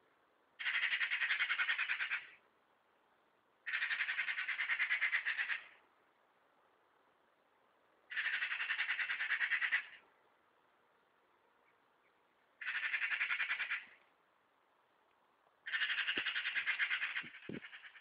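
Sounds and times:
magpie rattling chatter: 0:00.6 - 0:02.4, 0:03.7 - 0:05.8, 0:08.1 - 0:10.0, 0:12.6 - 0:14.0, 0:15.6 - 0:18.0.

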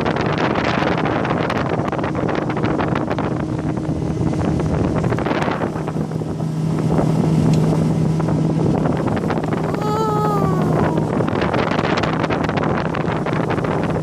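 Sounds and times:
outboard motor running: 0:00.0 - 0:14.0
wind buffeting microphone: 0:00.0 - 0:14.0.

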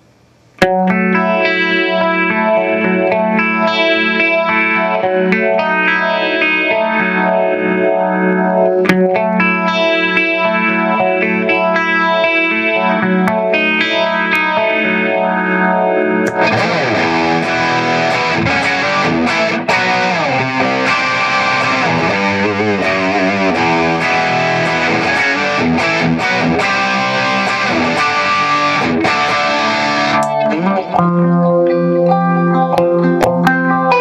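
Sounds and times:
distorted electric guitar: 0:00.0 - 0:34.0.

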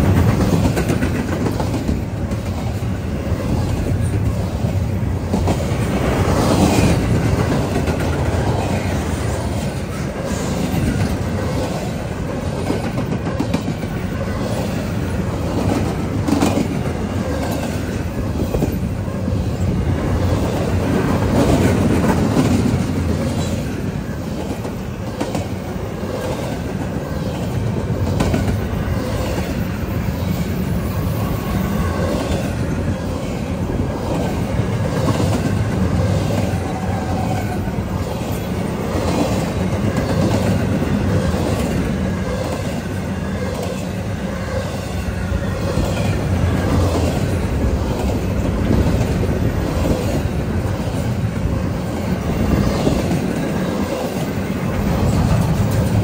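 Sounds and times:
clickety-clack of wheels on rail joints: 0:00.0 - 0:56.0
train wheels rumbling: 0:00.0 - 0:56.0.

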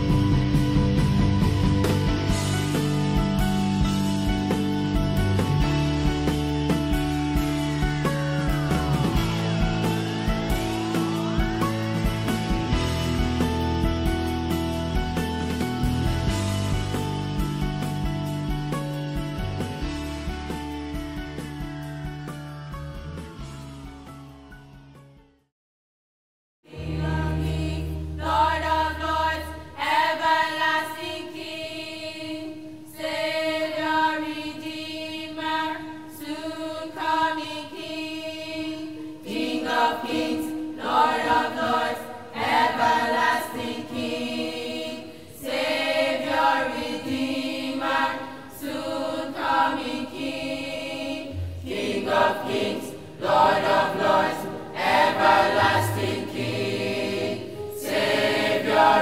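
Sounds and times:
children's choir singing: 0:26.7 - 0:59.0.

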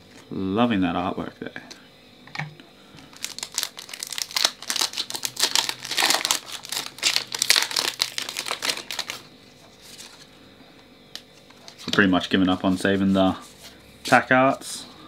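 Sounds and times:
foil wrapper crinkling: 0:03.0 - 0:10.3.

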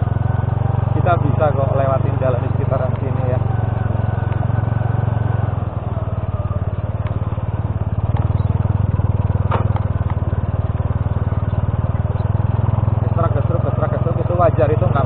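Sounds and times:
motorcycle engine running: 0:00.0 - 0:15.0
light knocks from stony track: 0:09.3 - 0:10.3.

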